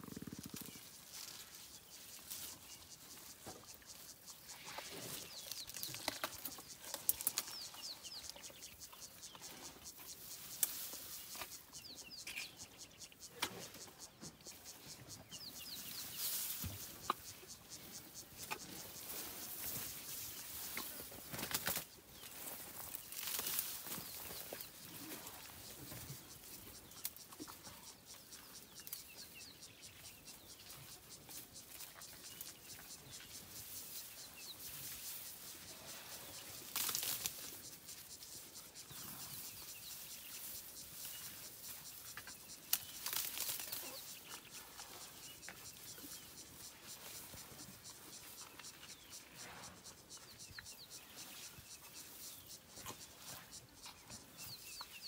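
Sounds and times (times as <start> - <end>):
elephant rustling grass: 18.7 - 26.6, 33.5 - 37.9, 42.8 - 45.2.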